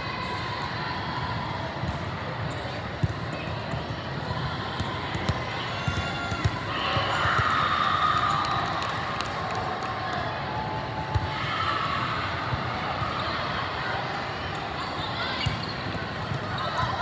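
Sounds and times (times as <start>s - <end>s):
many voices: 0.0s - 17.0s
volleyballs being hit and bounced: 4.8s - 7.6s.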